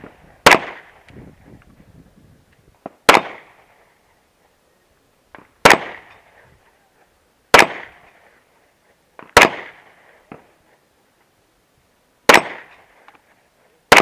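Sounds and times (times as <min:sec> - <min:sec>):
pistol shots with echo: 0:00.4 - 0:00.9, 0:03.0 - 0:03.6, 0:05.6 - 0:06.2, 0:07.5 - 0:08.0, 0:09.3 - 0:09.8, 0:12.3 - 0:12.8.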